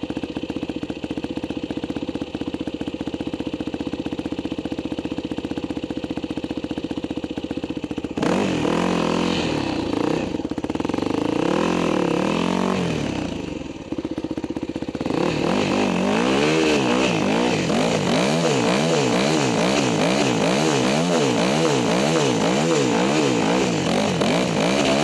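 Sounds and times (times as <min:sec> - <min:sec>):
dirt bike engine revving: 0:08.0 - 0:25.0.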